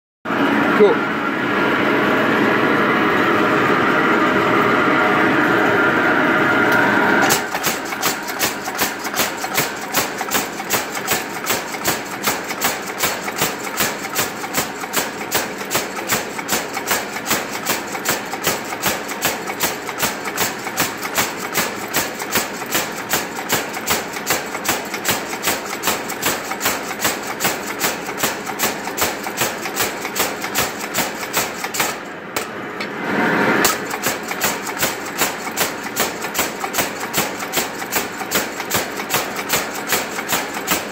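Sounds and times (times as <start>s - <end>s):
power hammer striking steel: 7.2s - 32.6s, 33.6s - 40.9s.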